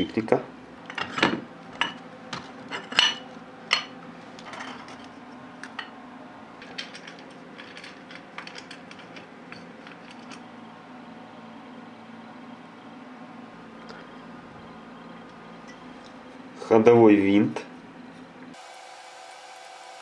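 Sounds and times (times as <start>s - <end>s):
metal parts clinking: 6.6s - 10.5s.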